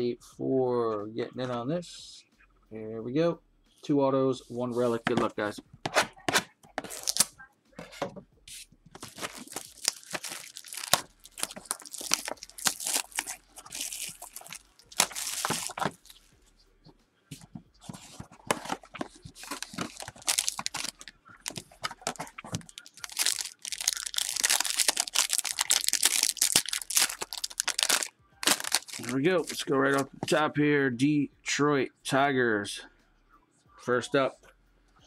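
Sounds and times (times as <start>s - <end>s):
foil pack crinkling: 6.8s - 7.3s, 9.0s - 16.3s, 18.5s - 30.2s
plastic wrap tearing and rustling: 6.8s - 7.3s, 8.6s - 16.3s, 18.5s - 30.1s.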